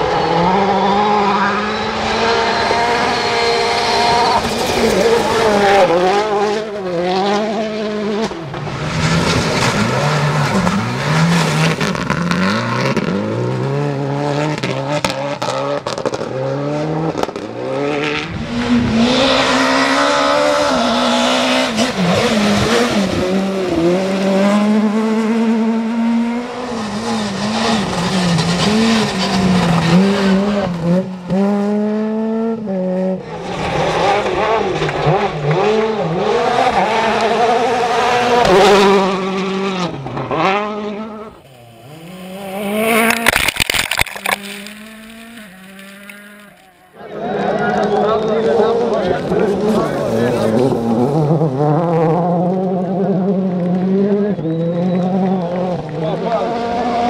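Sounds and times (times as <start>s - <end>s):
rally car engines revving: 0.0s - 57.0s
tyres spraying gravel: 41.5s - 46.6s.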